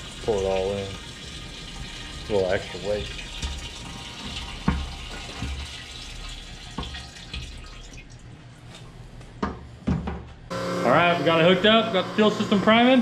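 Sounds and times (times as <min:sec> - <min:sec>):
fuel trickling into tank: 0:00.0 - 0:08.4.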